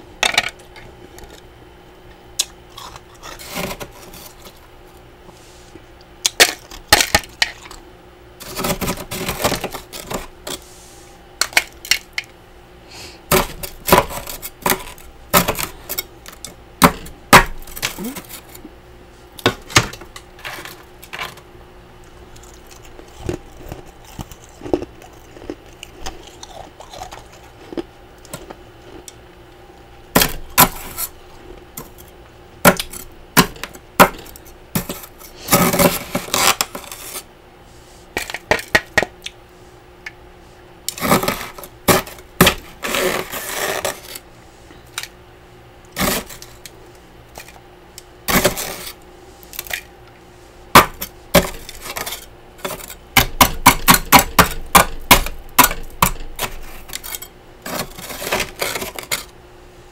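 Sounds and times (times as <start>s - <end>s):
spatula scraping frost: 2.9s - 4.6s, 30.6s - 31.2s, 34.8s - 38.2s, 40.9s - 44.2s, 46.0s - 46.5s, 48.3s - 49.5s, 51.4s - 53.0s, 56.4s - 59.3s.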